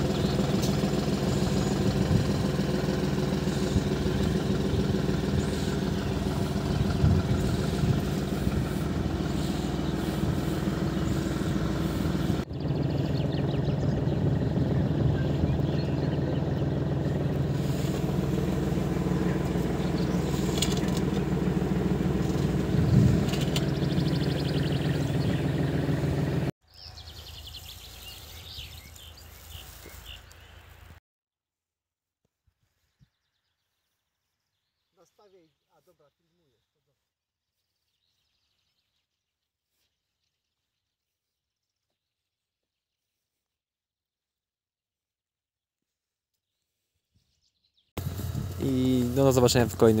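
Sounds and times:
bird chirps: 0.0 - 17.3, 19.2 - 21.2, 22.3 - 25.8, 26.6 - 30.9
tractor engine running: 0.0 - 30.9, 48.0 - 50.0.

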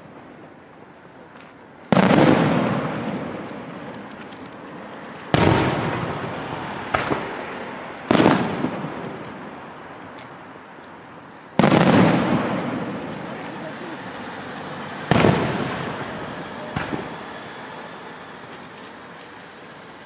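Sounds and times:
firework sharp crack: 0.0 - 10.4, 11.4 - 18.8
firework shells booming: 1.8 - 9.6, 11.5 - 18.8.

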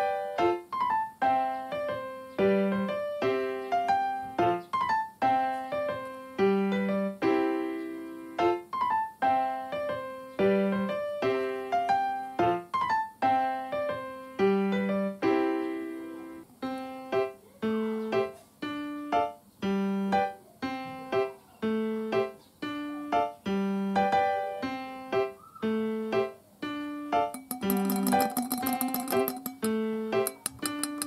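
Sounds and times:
gentle piano tune: 0.0 - 31.0
plucked string notes: 27.4 - 31.0.

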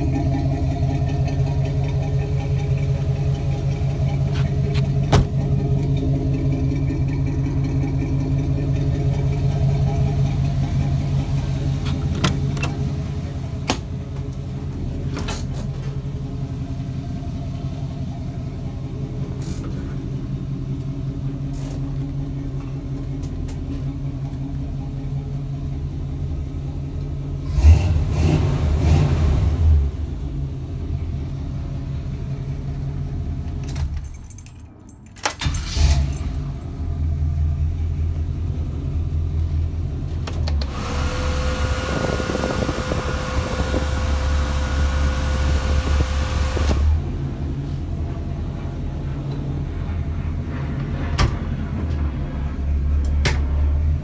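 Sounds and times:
engine idling: 0.0 - 27.7, 29.8 - 34.5, 35.4 - 54.0
engine revving: 27.4 - 30.2, 40.5 - 47.3
steady whine: 40.6 - 53.2.

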